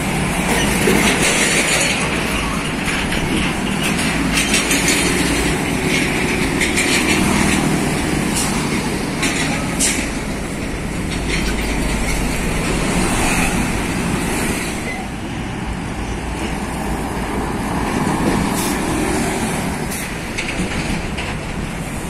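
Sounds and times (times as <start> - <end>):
diesel truck engine rumble: 0.0 - 22.0
tyre and road noise: 0.0 - 22.0.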